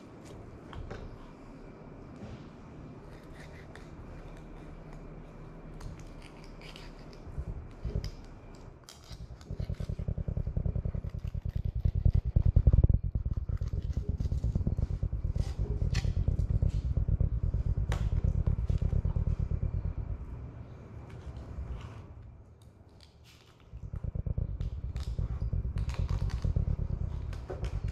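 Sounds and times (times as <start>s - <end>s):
loud fast low throbbing: 9.4s - 21.7s, 23.7s - 27.9s.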